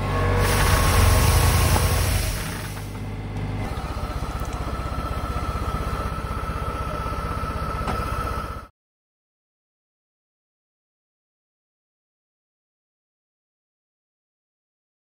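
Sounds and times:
tractor engine running: 0.0s - 8.7s.

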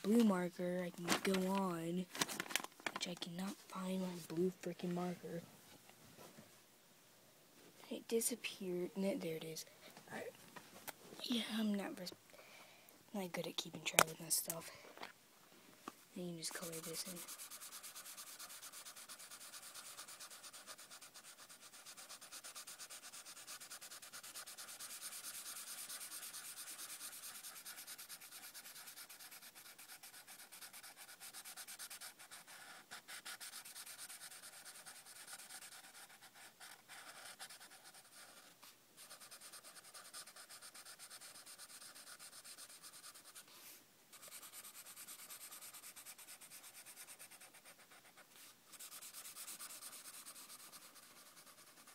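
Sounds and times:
marker scratching on paper: 16.2s - 51.9s.

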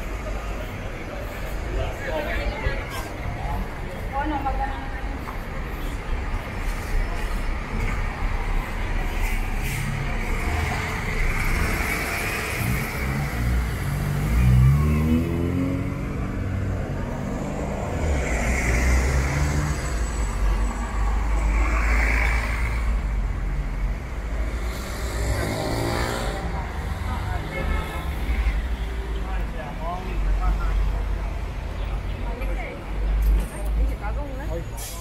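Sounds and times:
traffic rumble: 0.0s - 35.0s
vehicle accelerating: 9.6s - 28.6s.

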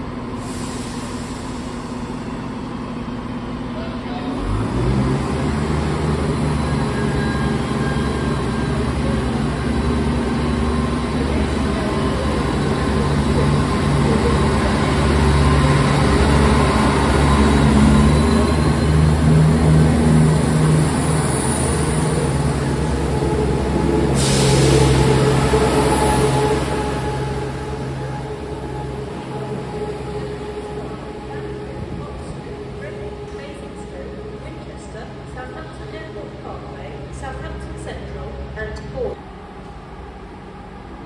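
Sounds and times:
diesel train engine hum: 0.0s - 41.0s
hiss: 0.4s - 2.1s, 24.1s - 25.1s.

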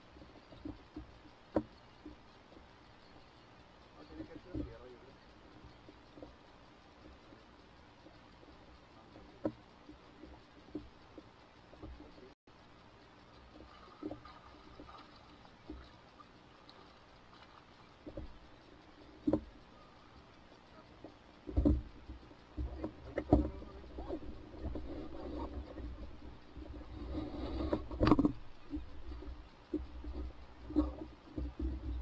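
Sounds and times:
knocks and thumps: 21.5s - 21.9s.

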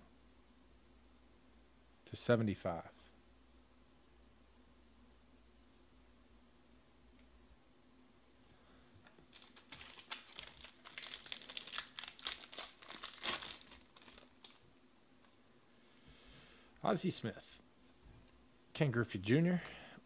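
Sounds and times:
wrapper crinkling and tearing: 9.2s - 14.6s.

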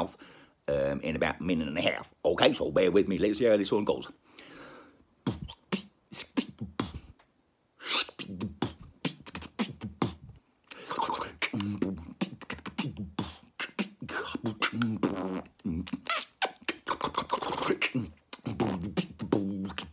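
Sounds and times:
man beatboxing: 5.2s - 7.2s, 7.8s - 19.9s.

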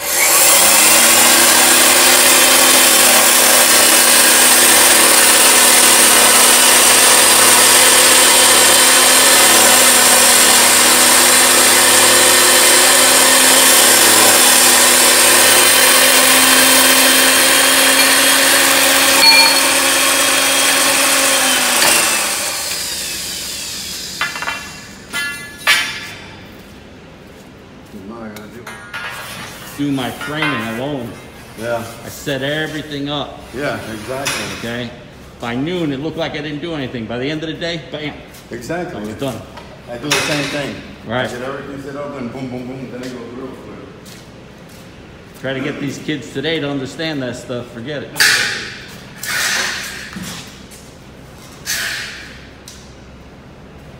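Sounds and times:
motor winding down: 0.0s - 24.2s
pipe threading machine running: 0.0s - 24.6s
sharp metal clink: 19.2s - 19.8s.

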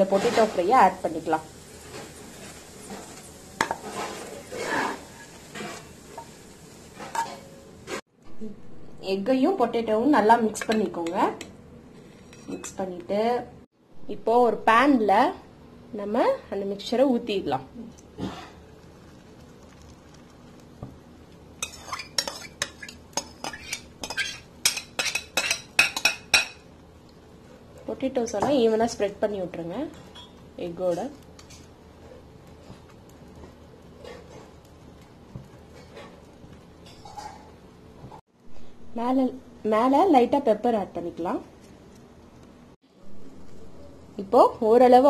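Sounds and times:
spoon scraping in a bowl: 2.4s - 6.3s, 11.9s - 12.8s, 21.6s - 26.6s.

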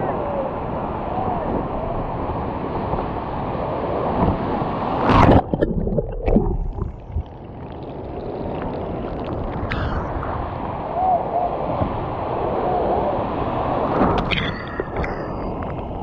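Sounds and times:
rushing surf: 0.0s - 16.0s
water splashing: 5.0s - 10.7s.

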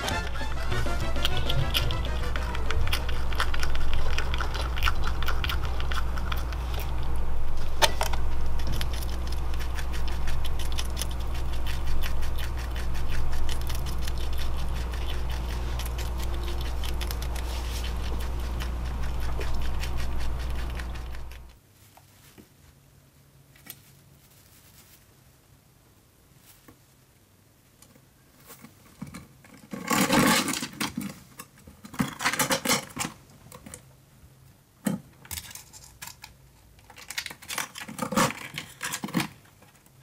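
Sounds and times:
squirrel crunching food: 0.0s - 21.6s, 35.2s - 40.0s
steady low hum: 0.0s - 23.4s
faint scratches: 1.4s - 22.5s.

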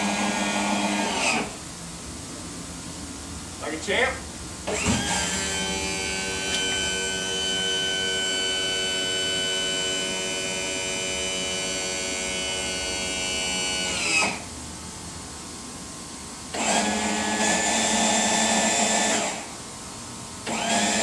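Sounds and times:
electric pump motor whining: 0.0s - 1.6s, 4.6s - 14.5s, 16.5s - 19.6s, 20.4s - 21.0s.

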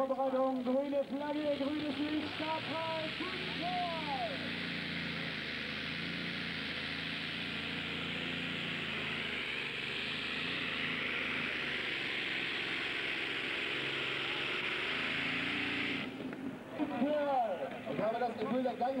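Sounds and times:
commentator speaking: 0.0s - 4.5s, 16.7s - 19.0s
pulling tractor engines roaring: 0.0s - 19.0s.

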